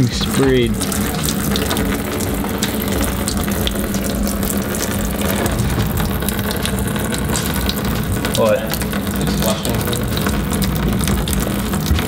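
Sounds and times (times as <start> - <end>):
coolant draining into a drain pan: 0.0 - 12.0
drips and spatters: 0.0 - 12.0
steady low hum: 0.0 - 12.0.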